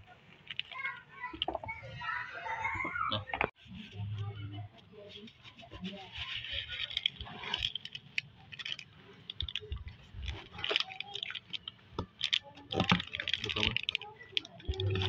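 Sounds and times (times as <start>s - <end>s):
plastic wrapper crinkling: 4.9s - 15.0s
foam beads rustling: 5.0s - 15.0s.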